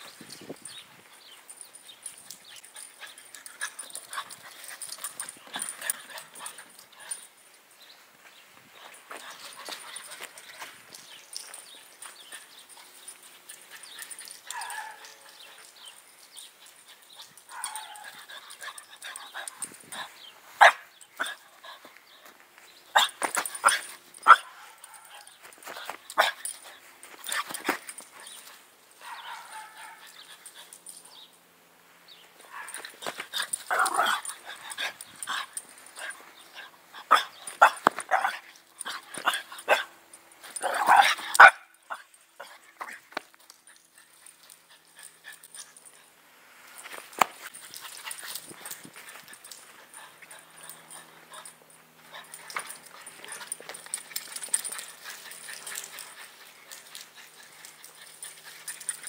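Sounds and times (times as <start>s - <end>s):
dog barking: 14.5s - 15.2s, 17.5s - 18.1s, 29.0s - 30.0s, 40.7s - 41.7s.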